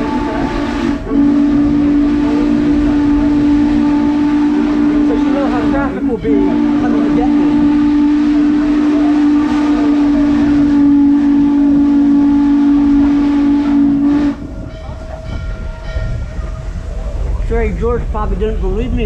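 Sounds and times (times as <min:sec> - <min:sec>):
steam whistle blast: 0:00.0 - 0:14.7
train running rumble: 0:00.0 - 0:19.0.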